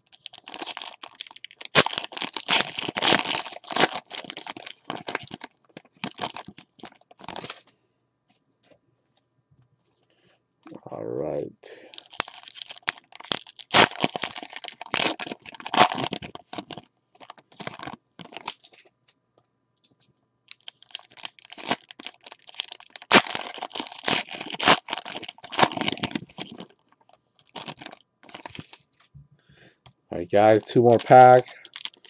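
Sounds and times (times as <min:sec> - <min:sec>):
foil wrapper crinkling and tearing: 0:00.0 - 0:07.7, 0:11.8 - 0:18.9, 0:20.5 - 0:28.8, 0:30.4 - 0:32.0.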